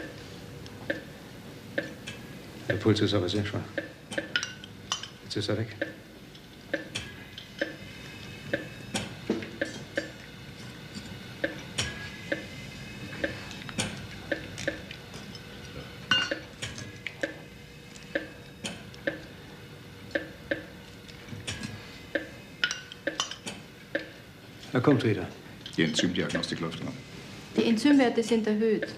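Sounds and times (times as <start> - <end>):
heart monitor beeping: 0.8 - 2.0, 6.7 - 10.2, 11.4 - 14.9, 18.1 - 19.4, 20.1 - 20.8, 22.0 - 22.4.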